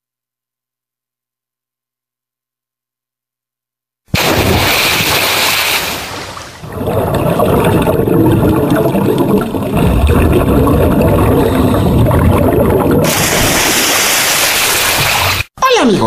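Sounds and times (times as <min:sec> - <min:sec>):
water churning and gurgling: 0:04.2 - 0:15.5.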